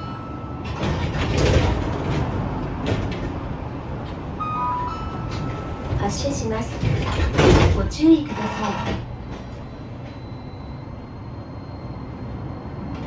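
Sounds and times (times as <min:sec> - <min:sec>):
tram equipment and street background: 0:00.0 - 0:13.0
two-note electronic beep: 0:04.4 - 0:06.0
held high tone: 0:04.4 - 0:06.2.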